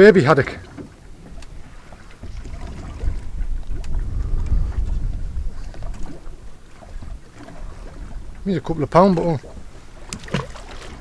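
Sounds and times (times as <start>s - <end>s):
water moving against hull: 0.0s - 11.0s
faint clicks: 0.8s - 1.6s, 3.6s - 4.6s
wind rumbling on microphone: 0.9s - 11.0s.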